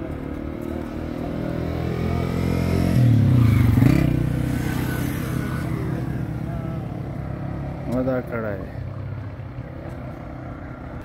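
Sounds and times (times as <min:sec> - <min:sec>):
vehicle engine passing by: 0:00.3 - 0:08.8.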